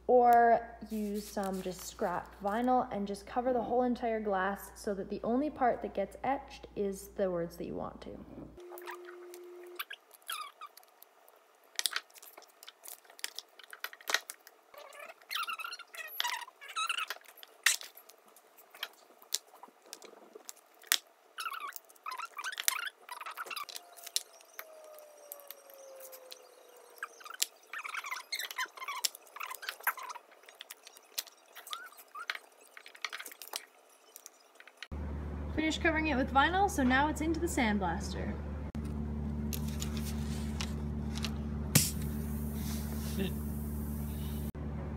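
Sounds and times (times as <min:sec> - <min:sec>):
vinyl sheet crinkling: 0:00.8 - 0:02.7, 0:08.7 - 0:34.8, 0:39.5 - 0:43.3.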